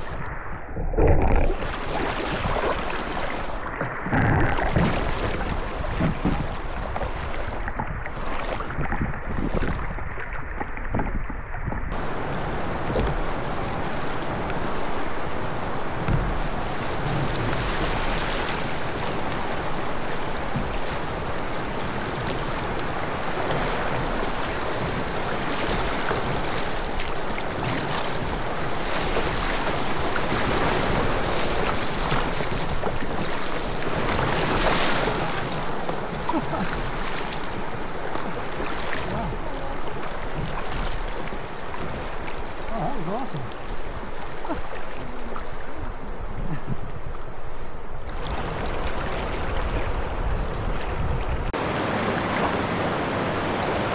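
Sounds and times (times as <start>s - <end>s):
wind buffeting microphone: 0.0s - 18.1s, 48.0s - 53.9s
paddle splashes: 0.0s - 47.3s, 48.0s - 53.9s
river rapids rushing: 48.1s - 53.9s.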